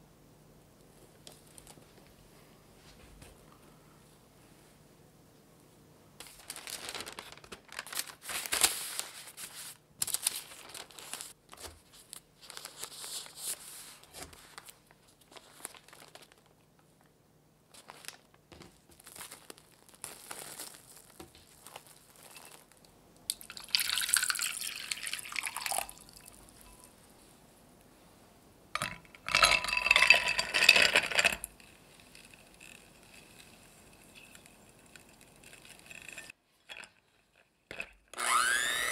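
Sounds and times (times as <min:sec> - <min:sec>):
baking paper crinkling: 0:06.2 - 0:16.6, 0:17.7 - 0:22.9.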